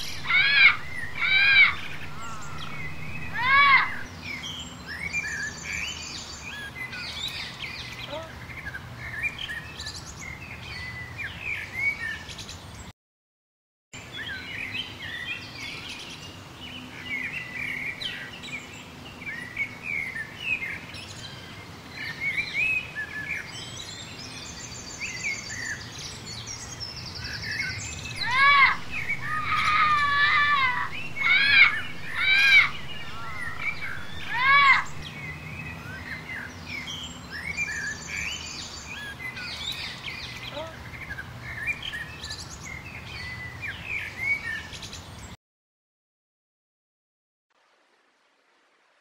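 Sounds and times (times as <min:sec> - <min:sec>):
bird trills: 0:00.0 - 0:06.0, 0:27.6 - 0:35.1
birds chirping: 0:00.0 - 0:12.9, 0:14.0 - 0:45.4.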